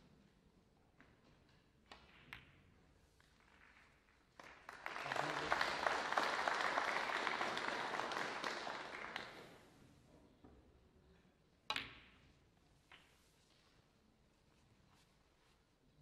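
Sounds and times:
audience applauding: 4.4s - 9.6s.

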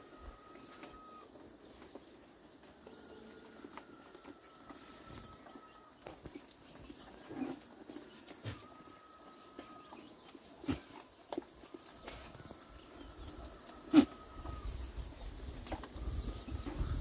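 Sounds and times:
low animal call: 0.0s - 1.3s, 11.8s - 14.9s
livestock knocks and taps: 3.7s - 12.9s, 15.5s - 17.0s.

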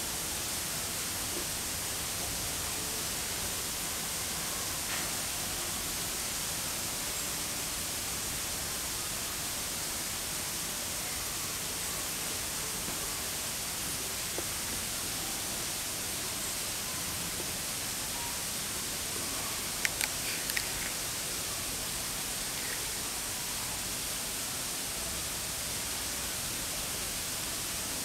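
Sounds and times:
steady hiss: 0.0s - 28.0s
faint click: 19.8s - 21.0s.

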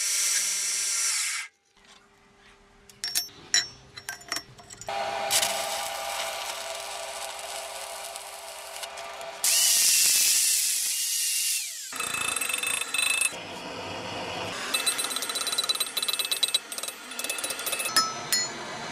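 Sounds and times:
metallic tapping and clinking: 2.9s - 4.9s, 14.8s - 18.6s
power tool running: 4.9s - 17.9s.

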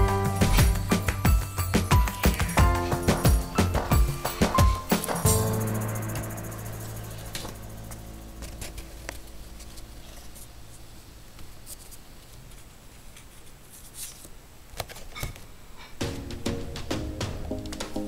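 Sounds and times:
low hum: 2.4s - 11.4s
paper and cardboard rustling: 7.4s - 15.5s.

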